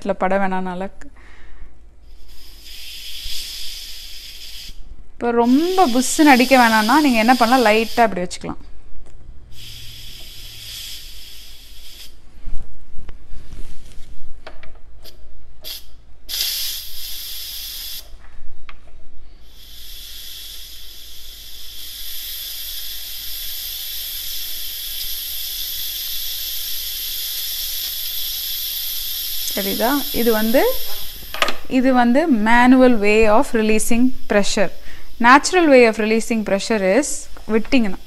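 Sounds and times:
pressure cooker steam hissing: 0:02.0 - 0:08.2, 0:09.5 - 0:12.2, 0:15.0 - 0:18.1, 0:19.4 - 0:38.0
valve knocks: 0:30.8 - 0:31.7.

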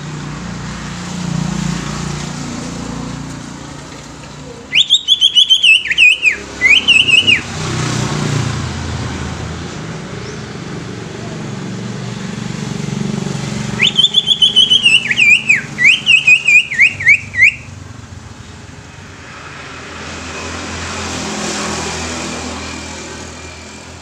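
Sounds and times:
bird whistling song: 0:04.7 - 0:07.5, 0:13.8 - 0:17.8.

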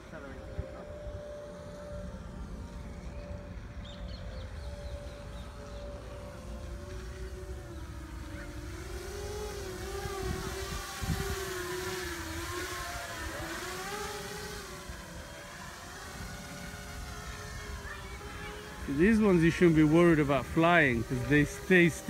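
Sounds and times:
wind rumble on microphone: 0:00.0 - 0:13.8
drone motors buzzing: 0:00.0 - 0:22.0.

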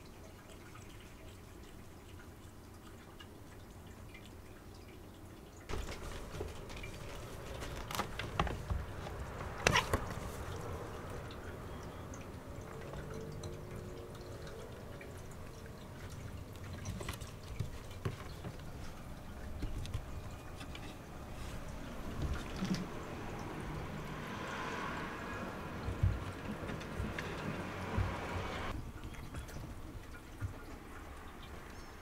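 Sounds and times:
cat paws tapping on wooden shelf: 0:05.7 - 0:11.2, 0:15.9 - 0:22.9.

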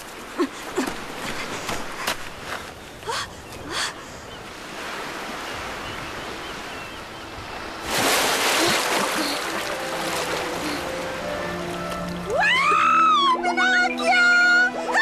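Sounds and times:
sea water washing: 0:04.5 - 0:12.4
water splashing: 0:07.5 - 0:12.7.

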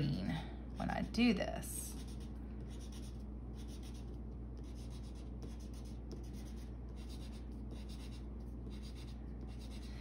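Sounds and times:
steady low hum: 0:00.0 - 0:10.0
marker scratching on paper: 0:01.9 - 0:09.9.

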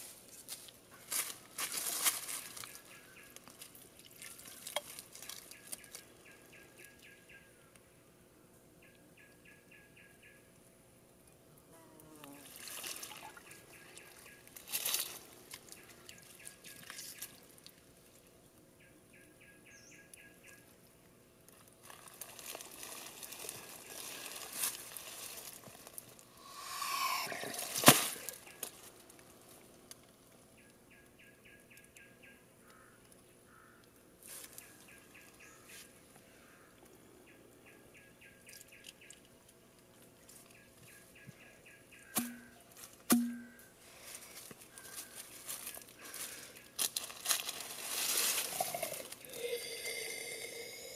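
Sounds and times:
dry leaves rustling: 0:00.0 - 0:06.3, 0:12.4 - 0:18.2, 0:21.5 - 0:30.2, 0:34.2 - 0:35.0, 0:43.8 - 0:49.5
insect trills: 0:26.3 - 0:28.7.

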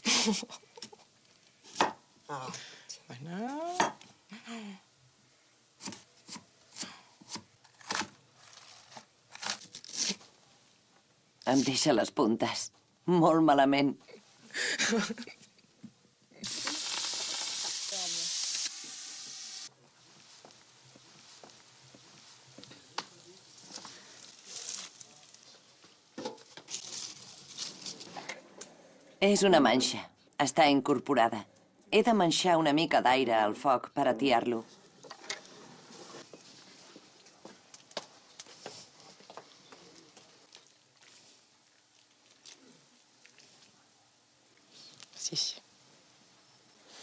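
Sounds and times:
stove clicks and crackles: 0:16.4 - 0:19.5, 0:22.5 - 0:24.2, 0:37.2 - 0:38.6
food sizzling in a hot pan: 0:16.4 - 0:24.7.

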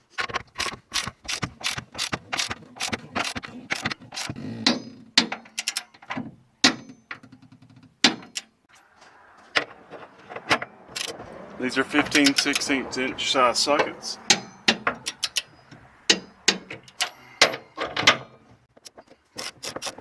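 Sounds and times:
ratchet wrench clicking: 0:00.6 - 0:04.4, 0:14.3 - 0:15.5.

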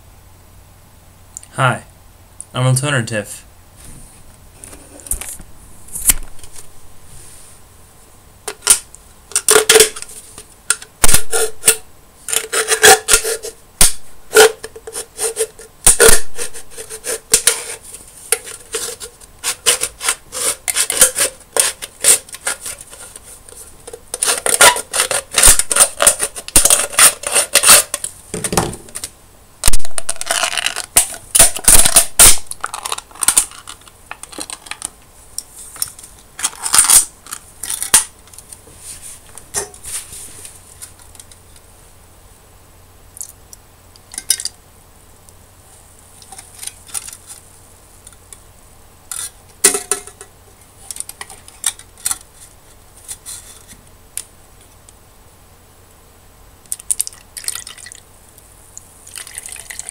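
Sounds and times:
aluminium can crackling: 0:10.7 - 0:35.0.

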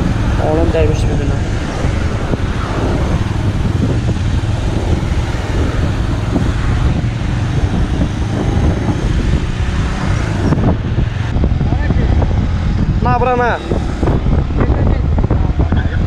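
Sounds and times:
motorcycle engine rumble: 0:00.0 - 0:16.0
wind and road noise: 0:00.0 - 0:16.0.

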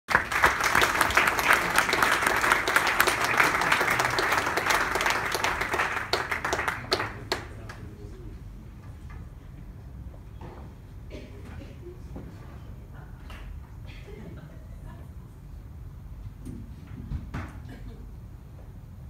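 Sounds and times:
audience applauding: 0:00.1 - 0:07.8.

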